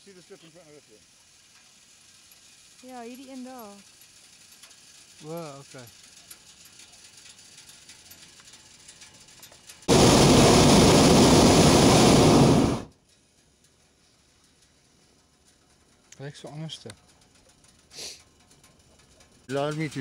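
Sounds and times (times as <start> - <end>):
propane burner firing: 0.0 - 13.0, 17.2 - 20.0.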